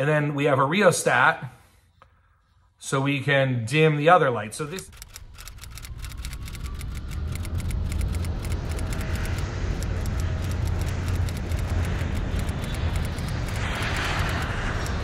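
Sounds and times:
low engine rumble: 0:04.6 - 0:15.0.

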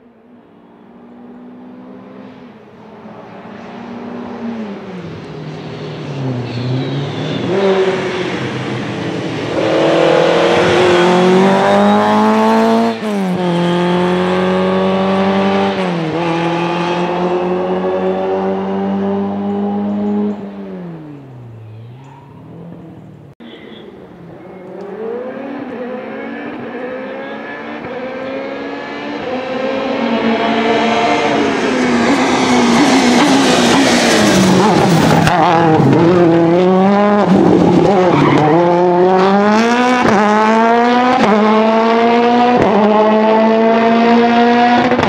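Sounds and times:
rally car engine revving past: 0:03.4 - 0:21.6, 0:24.8 - 0:45.0.

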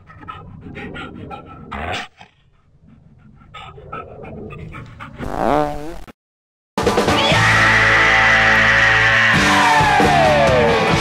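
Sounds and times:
dog panting: 0:00.0 - 0:05.2.

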